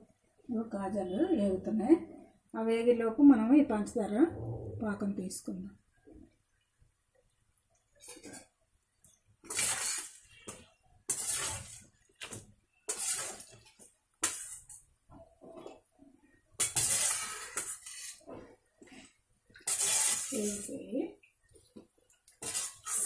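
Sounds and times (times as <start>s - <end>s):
pastries sizzling in hot oil: 9.4s - 14.9s, 16.6s - 18.3s, 19.6s - 21.1s, 22.4s - 23.0s.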